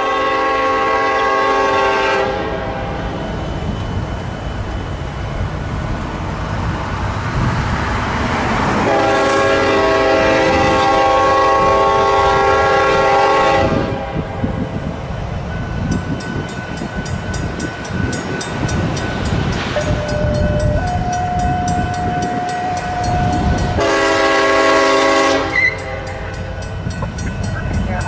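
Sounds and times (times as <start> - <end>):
locomotive air horn blast: 0.0 - 3.0, 8.8 - 14.4, 19.7 - 26.3
passing train rumble: 0.0 - 28.0
wheels clicking over rail joints: 15.7 - 24.0, 25.5 - 28.0.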